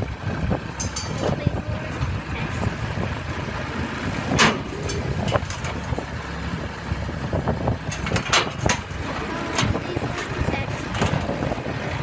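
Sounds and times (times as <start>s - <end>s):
dozer engine running: 0.0s - 12.0s
metal clanks of tracks on ramps: 0.8s - 2.7s, 4.3s - 6.0s, 7.9s - 11.3s.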